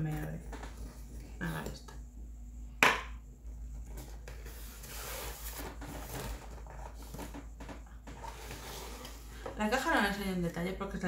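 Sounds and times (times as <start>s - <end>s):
cardboard rustling and scraping: 3.7s - 10.0s.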